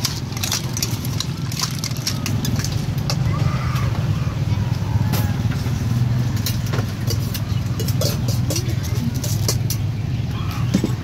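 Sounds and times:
metal utensils clinking: 0.0 - 3.4, 5.1 - 10.0
faint voices: 0.4 - 11.0.

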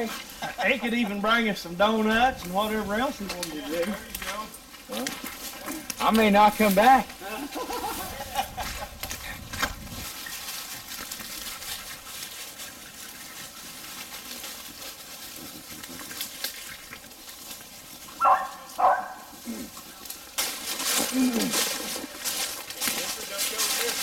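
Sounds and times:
rustle of dry grass: 0.0 - 24.0
dog barking: 18.2 - 19.3.

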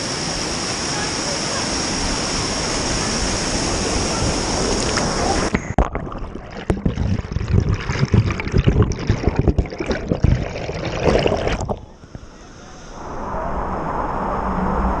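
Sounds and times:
waterfall rushing: 0.0 - 5.5
muffled underwater rumbling: 4.1 - 12.4
water bubbles and low knocks: 5.7 - 11.9.

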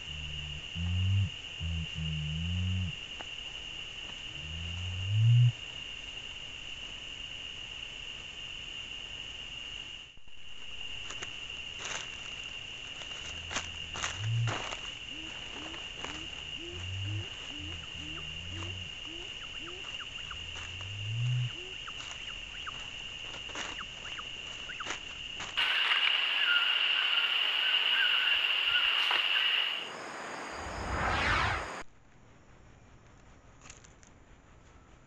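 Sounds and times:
curassow deep booming hums: 0.0 - 3.2, 4.1 - 5.7, 12.6 - 24.9
chorus of night insects: 0.0 - 31.8
high insect drone: 0.0 - 31.8.

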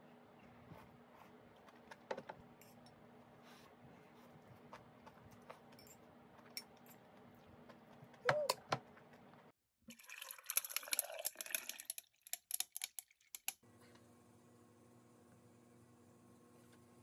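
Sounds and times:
liquid pouring over ice: 9.9 - 12.3.

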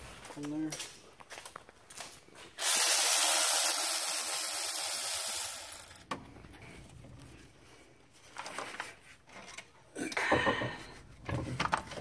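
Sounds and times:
electric ratchet running: 2.6 - 6.0.

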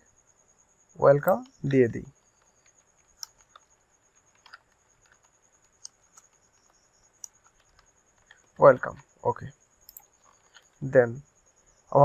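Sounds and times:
computer keyboard keystrokes: 2.5 - 8.5.

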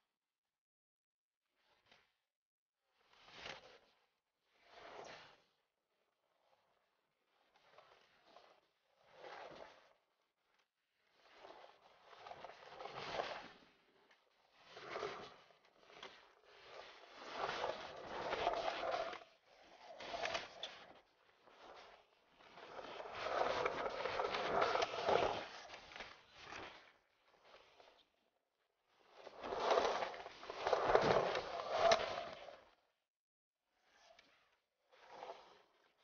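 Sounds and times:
skateboard wheels rolling on concrete: 14.5 - 27.0, 29.0 - 32.8.

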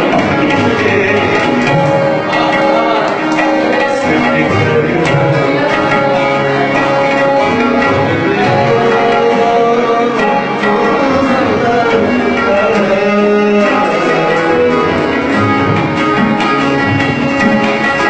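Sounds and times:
held melody notes: 0.0 - 18.0
tabla drumming: 0.0 - 18.0.

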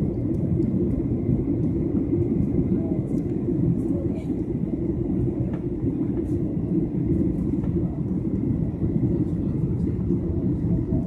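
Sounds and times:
jet engines and airflow rushing: 0.0 - 11.0.

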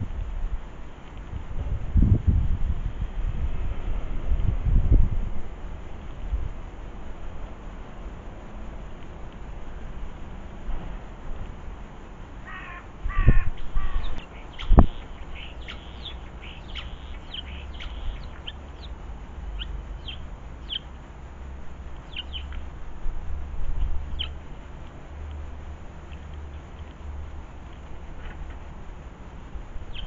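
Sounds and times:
steady low rumble: 0.0 - 30.0
harsh grating bird calls: 12.5 - 20.9, 22.0 - 22.7, 23.8 - 24.4
small birds chirping: 12.5 - 22.8, 23.6 - 25.4, 26.0 - 28.2, 29.1 - 30.0.

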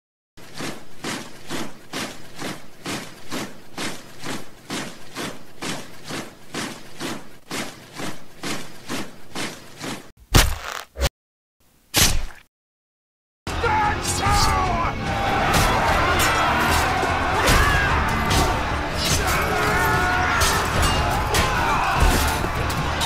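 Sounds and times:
marching footsteps: 0.4 - 10.1, 15.3 - 23.0.

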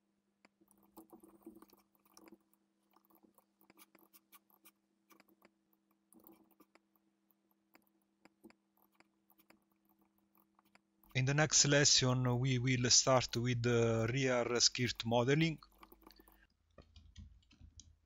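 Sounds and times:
low steady hum: 10.8 - 18.0.

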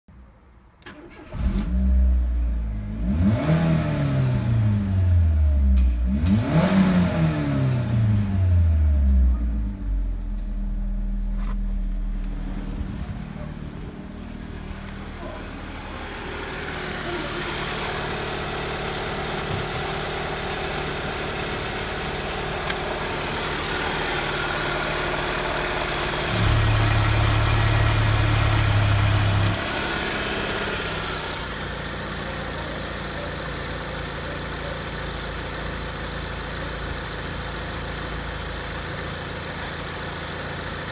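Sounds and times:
car engine idling: 7.7 - 40.9
loud deep hum: 8.6 - 31.4.

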